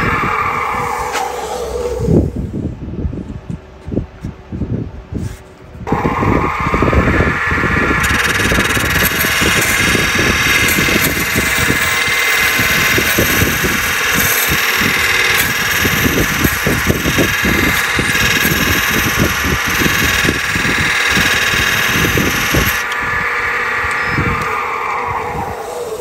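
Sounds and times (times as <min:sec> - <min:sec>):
wood lathe motor running: 0:07.3 - 0:26.0
turning tool cutting wood: 0:08.0 - 0:26.0.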